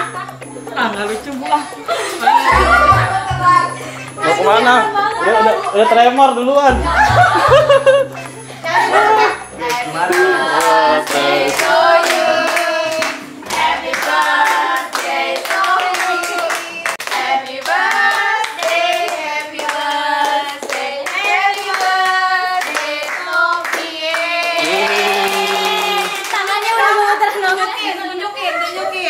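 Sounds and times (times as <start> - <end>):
women singing together: 0.0 - 6.1, 6.7 - 29.0
hands clapping: 9.7 - 26.8.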